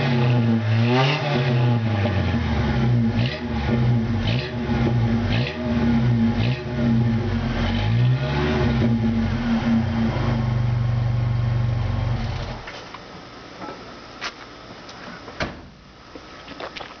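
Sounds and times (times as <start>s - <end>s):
car engine revving: 0.0s - 12.6s.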